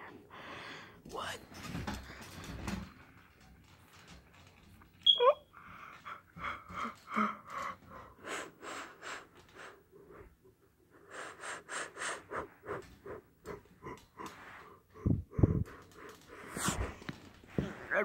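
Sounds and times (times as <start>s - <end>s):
short breathy puffs: 10.9s - 18.0s.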